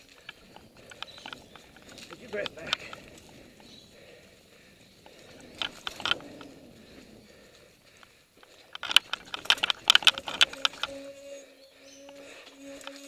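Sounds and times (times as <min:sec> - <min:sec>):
bike rattling over rocks: 0:00.0 - 0:03.7, 0:05.0 - 0:11.1
bike clicks: 0:00.0 - 0:13.0
bike tyre rumble on dirt: 0:00.0 - 0:13.0.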